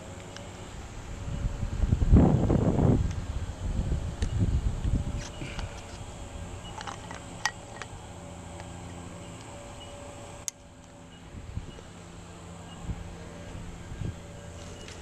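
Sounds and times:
carabiners clinking: 0:06.6 - 0:08.0.

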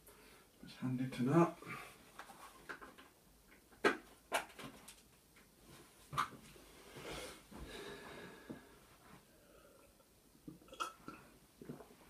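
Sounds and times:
plastic parts clicking and knocking: 0:02.2 - 0:05.5.

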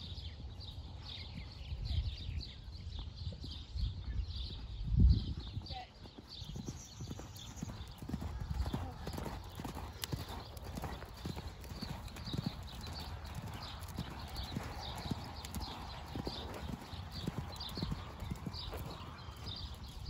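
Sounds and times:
horse hoofbeats on sand: 0:04.5 - 0:20.0.

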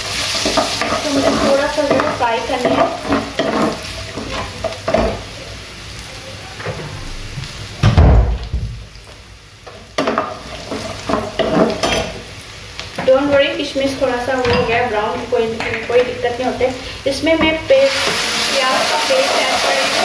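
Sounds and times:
spatula stirring and scraping pan: 0:00.0 - 0:05.3, 0:09.7 - 0:12.3, 0:17.5 - 0:20.0
nuts sizzling in hot oil: 0:00.0 - 0:20.0.

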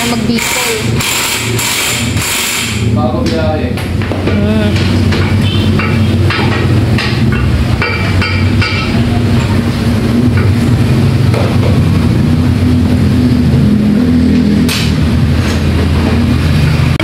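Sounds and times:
scooter engine running: 0:00.0 - 0:03.0.

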